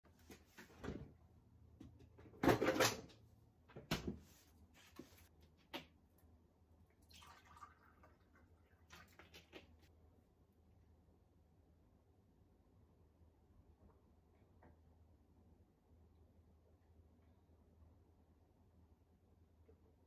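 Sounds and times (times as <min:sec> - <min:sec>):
water pouring into a glass: 0:06.9 - 0:09.2.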